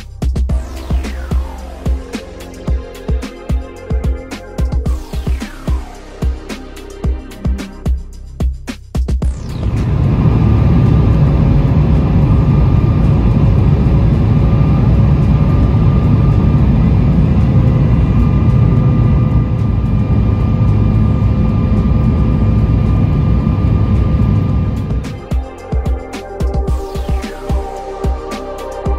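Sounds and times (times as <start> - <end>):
jet engine drone: 0.0 - 8.2, 9.2 - 28.9
rushing air: 9.6 - 28.4.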